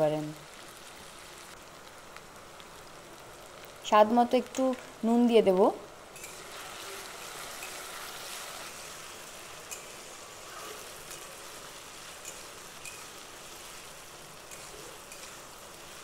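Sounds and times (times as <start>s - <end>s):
potatoes sizzling in oil: 0.0s - 16.0s.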